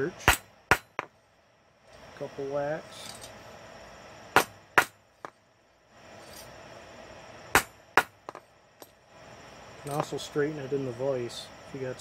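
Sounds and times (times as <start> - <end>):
hammer striking steel on anvil: 0.2 - 1.1.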